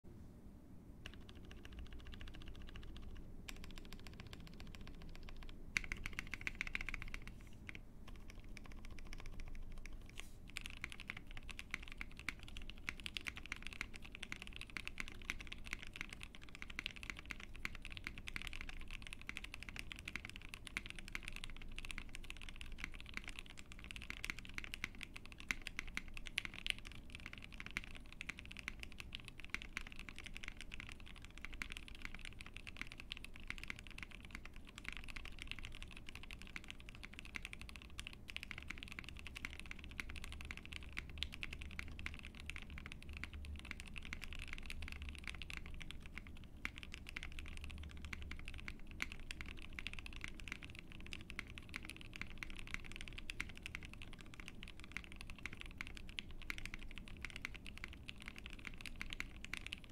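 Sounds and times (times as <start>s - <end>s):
mechanical keyboard typing: 1.0s - 59.9s.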